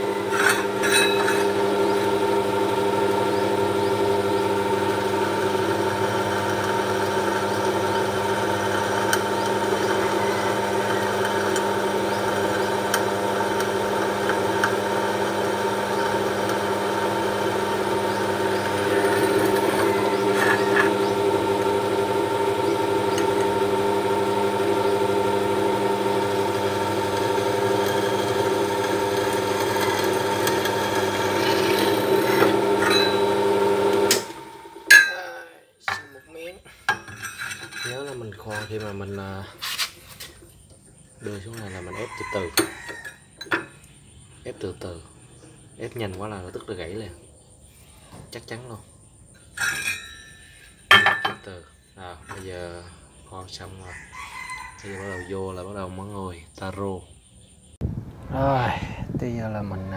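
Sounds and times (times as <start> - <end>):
drill bit scraping metal: 0.0 - 2.2, 18.0 - 23.5, 26.0 - 34.3, 37.1 - 40.0
drill press motor running: 0.0 - 35.0.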